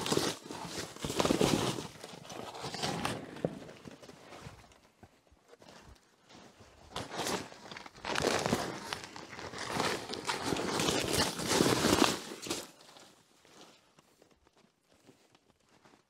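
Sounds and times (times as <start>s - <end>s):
plastic tarp rustling: 0.0s - 4.5s, 6.3s - 13.1s.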